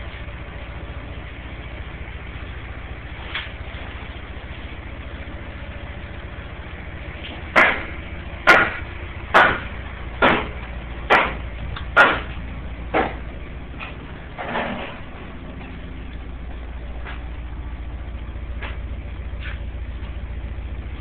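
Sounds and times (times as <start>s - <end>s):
engine idling: 0.0s - 21.0s
hammer blows: 7.5s - 15.0s.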